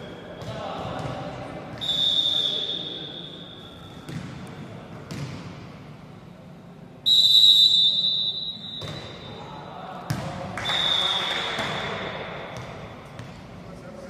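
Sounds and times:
referee's whistle blast: 1.8s - 3.5s, 7.0s - 9.4s, 10.6s - 11.6s.

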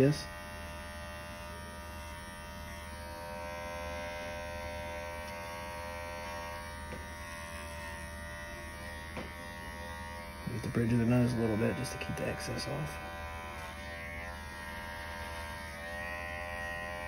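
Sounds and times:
electric hair trimmer buzzing: 0.0s - 17.0s.

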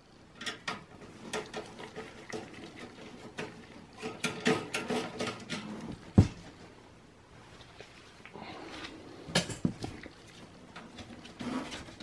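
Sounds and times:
heavy thump: 6.1s - 6.5s.

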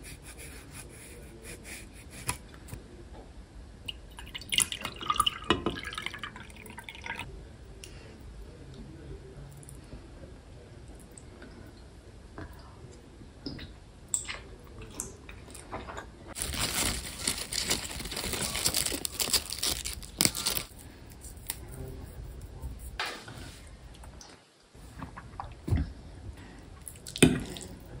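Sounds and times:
leaves being torn by hand: 16.4s - 20.7s.

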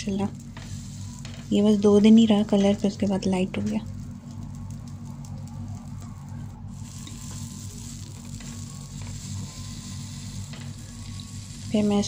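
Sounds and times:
low hum: 0.0s - 12.0s
flatbread sizzling in oil: 6.7s - 12.0s.

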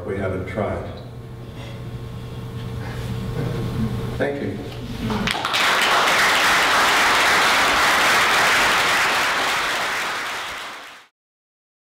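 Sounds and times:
audience applauding: 5.1s - 11.1s.

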